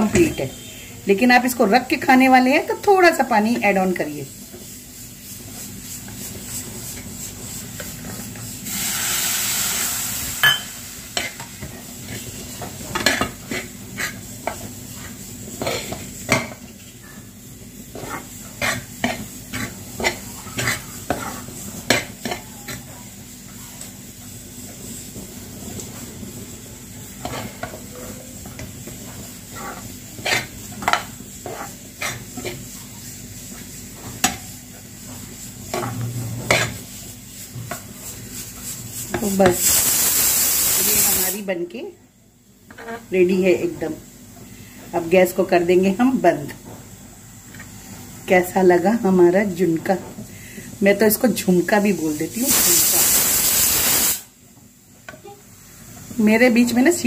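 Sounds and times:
spoon clinking against pan: 10.4 - 10.7
spoon scraping metal pan: 17.9 - 22.9, 27.2 - 32.7, 35.6 - 36.9
brief sizzling hiss: 39.6 - 41.3, 52.5 - 54.3.

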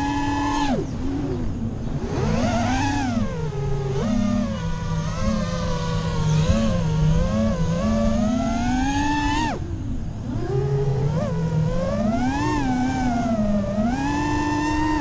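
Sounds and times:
drone motors whining: 0.0 - 15.0.

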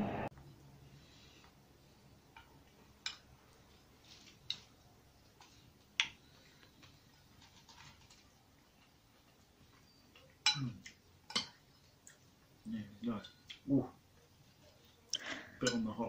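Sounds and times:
spoon clinking against ceramic bowl: 10.4 - 10.7, 11.3 - 11.6.

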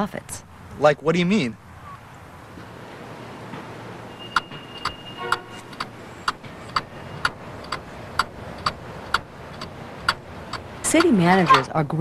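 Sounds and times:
clockwork timer ticking: 4.1 - 11.8.

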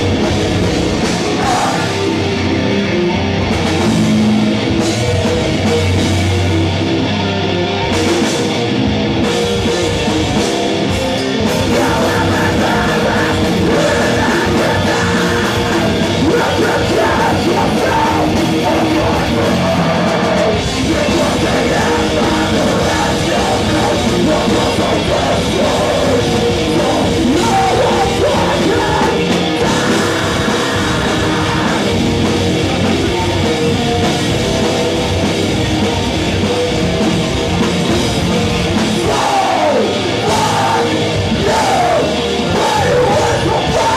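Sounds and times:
distorted guitars: 0.0 - 43.9
drums: 0.0 - 43.9
screamed vocals: 1.4 - 2.1, 11.7 - 32.0, 39.0 - 43.9.

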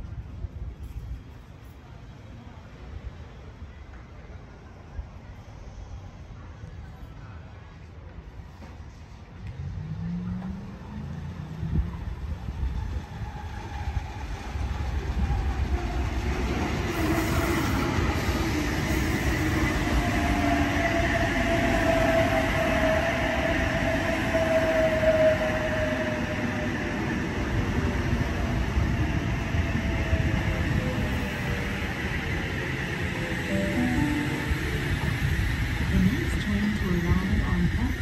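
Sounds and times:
train wheels running on rails: 7.9 - 38.0
train whine falling in pitch: 33.5 - 35.6.

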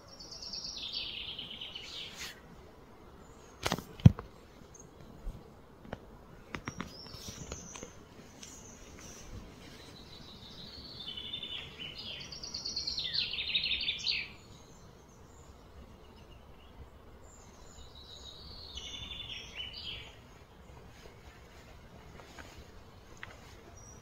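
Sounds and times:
steady background hiss: 0.0 - 24.0
songbird trilling: 10.2 - 14.5, 18.1 - 20.2.

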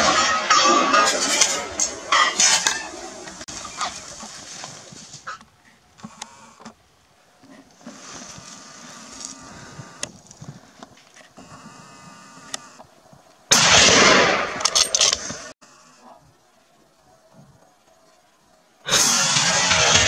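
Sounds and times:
faint outdoor sounds: 0.0 - 20.0
sharp clicks: 12.4 - 13.4
rifle shot: 13.5 - 15.5, 18.9 - 20.0.

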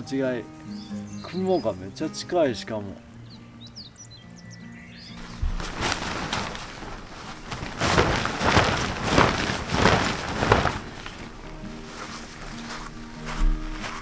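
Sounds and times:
tent fabric rustling: 5.2 - 14.0.

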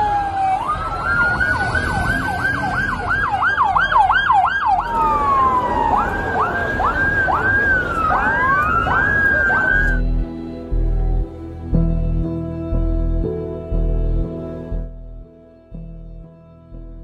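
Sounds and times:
fast yelping siren: 0.0 - 10.0
slow wailing siren: 0.0 - 12.4.

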